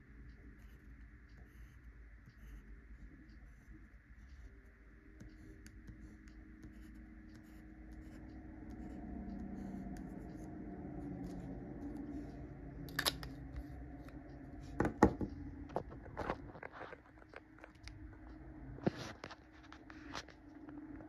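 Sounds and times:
pen nib scratching on paper: 0.4s - 12.4s.

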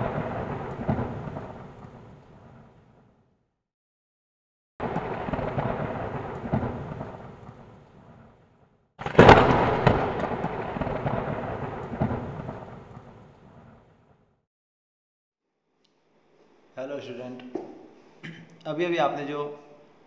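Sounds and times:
volcanic eruption blasts: 0.0s - 3.0s, 4.8s - 14.2s
rumble with sharp crackling: 0.0s - 3.1s, 4.8s - 14.3s.

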